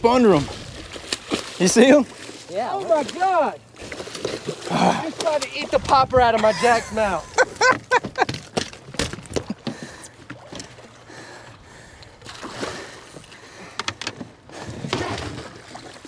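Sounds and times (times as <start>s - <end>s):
water splashing by hull: 0.0s - 16.0s.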